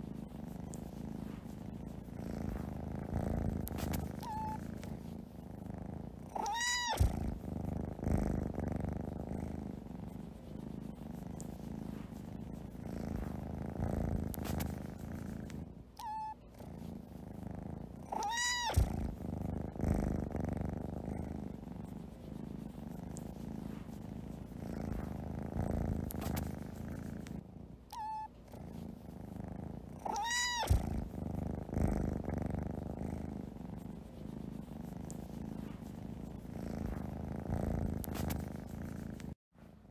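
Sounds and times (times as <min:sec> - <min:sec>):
cat purring: 0:00.0 - 0:39.9
cat meowing: 0:06.4 - 0:07.1, 0:18.2 - 0:18.9, 0:30.0 - 0:30.8.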